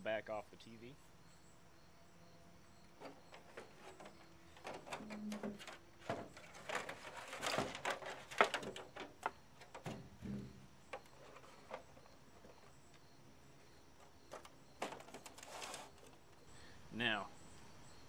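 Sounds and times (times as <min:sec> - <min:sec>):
plastic cover knocking and clattering: 0:03.0 - 0:11.9, 0:14.3 - 0:15.5
short rustle: 0:14.9 - 0:16.2.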